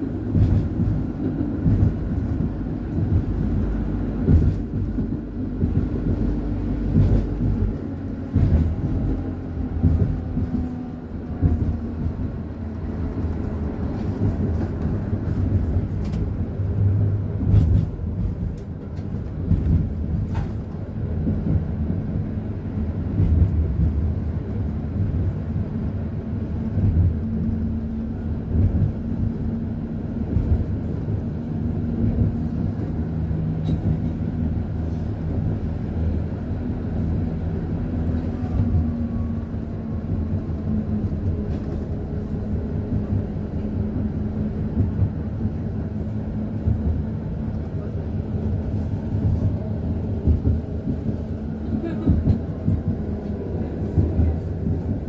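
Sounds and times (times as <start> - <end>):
tram wheels rumbling on rail: 0.0 - 55.0.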